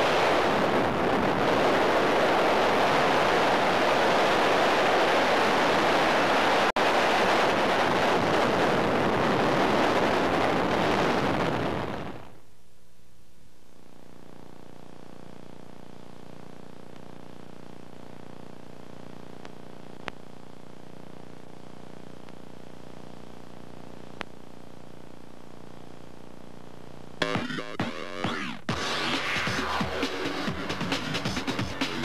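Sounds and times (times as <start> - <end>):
faint clicks: 19.4 - 20.2.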